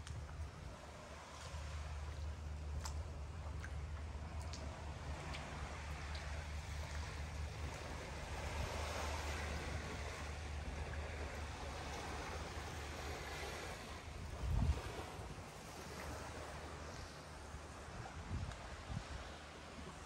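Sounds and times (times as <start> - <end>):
sea surf: 4.7 - 20.0.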